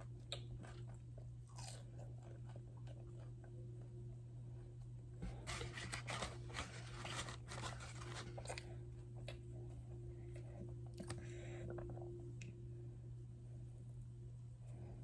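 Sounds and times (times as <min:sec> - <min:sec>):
person chewing: 0:00.0 - 0:03.8, 0:07.2 - 0:12.4
low hum: 0:00.0 - 0:15.0
croissant crackling and tearing: 0:01.5 - 0:02.6, 0:05.3 - 0:08.8.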